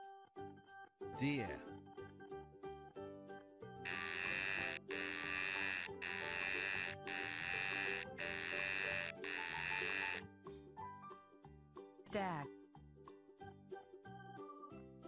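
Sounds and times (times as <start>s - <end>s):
light background music: 0.0s - 15.0s
harsh buzzy deer call: 3.9s - 10.2s.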